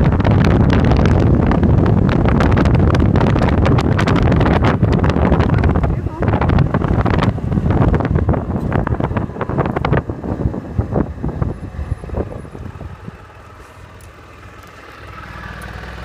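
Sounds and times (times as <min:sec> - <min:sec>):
scooter engine running low: 0:00.0 - 0:16.0
wind buffeting microphone: 0:00.0 - 0:16.0.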